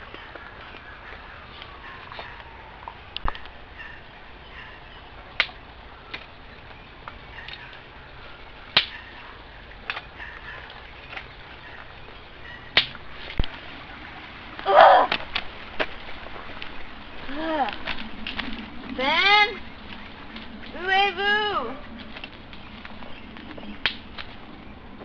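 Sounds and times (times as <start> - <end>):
twigs snapping underfoot: 5.3 - 6.4, 9.8 - 11.9, 12.7 - 13.6, 21.9 - 24.4.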